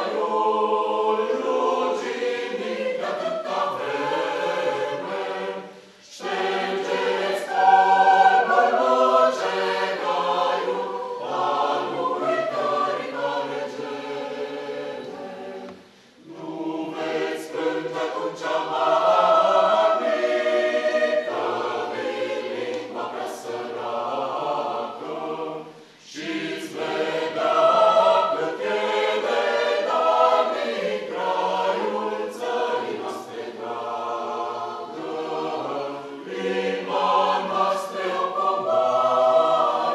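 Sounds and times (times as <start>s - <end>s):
mixed choir singing unaccompanied: 0.0s - 39.9s.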